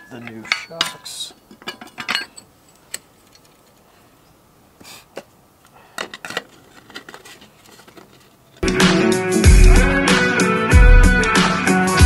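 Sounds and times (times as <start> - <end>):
metal tools clinking and knocking: 0.0 - 3.8.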